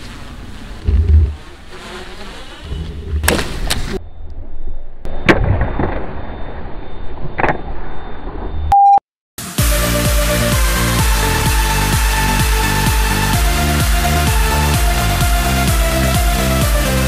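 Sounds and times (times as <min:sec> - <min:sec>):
drone crashing on hard ground: 0:05.1 - 0:08.4
short high beep: 0:08.7 - 0:09.0.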